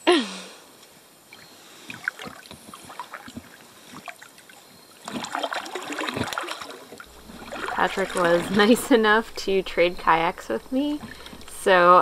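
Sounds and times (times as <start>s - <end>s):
paddle splashing and dripping: 1.2s - 12.0s
person's voice: 7.7s - 12.0s.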